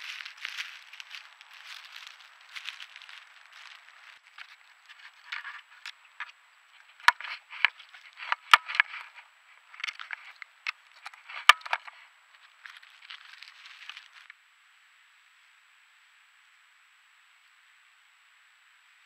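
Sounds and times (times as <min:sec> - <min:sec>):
dry leaves crunching: 0:00.0 - 0:14.3.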